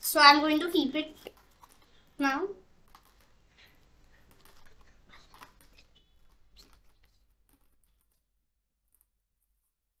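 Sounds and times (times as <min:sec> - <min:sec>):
pens clicking and rustling: 0:01.2 - 0:02.2, 0:02.8 - 0:08.2.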